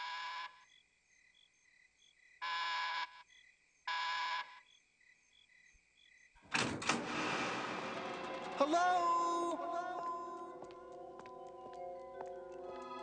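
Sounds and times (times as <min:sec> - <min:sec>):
crickets chirping: 0:00.5 - 0:06.4
electric door buzzer: 0:06.6 - 0:08.6
loud noisy burst: 0:06.6 - 0:09.6.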